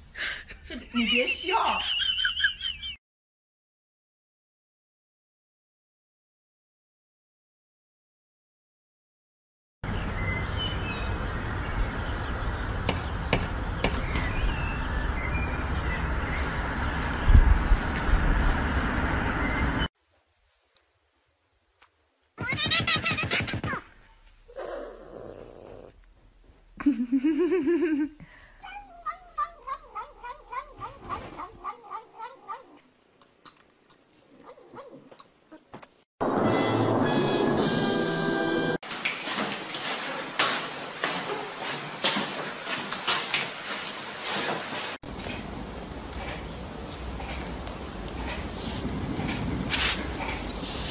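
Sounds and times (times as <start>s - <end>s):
background noise: 20.0s - 36.0s
cat yowling: 24.5s - 25.9s, 28.6s - 32.8s
faint low cat sounds: 24.5s - 26.0s, 28.6s - 32.9s.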